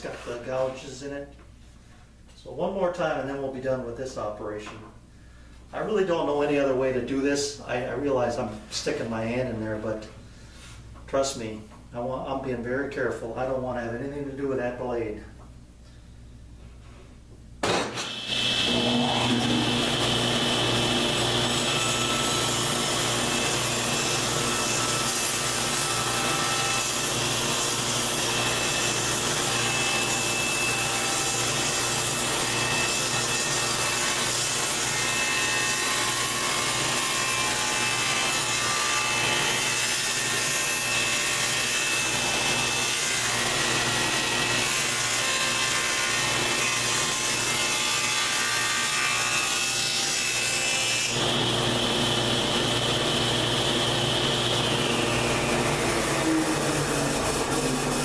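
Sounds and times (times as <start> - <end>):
table saw cutting plywood: 17.6 - 58.0.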